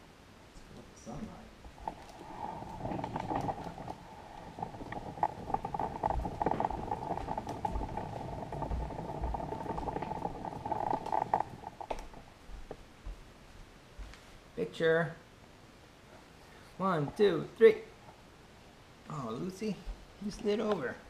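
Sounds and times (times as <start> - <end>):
small knocks and rattles: 1.6 - 12.8
stroller wheels rolling on wood: 1.6 - 12.8.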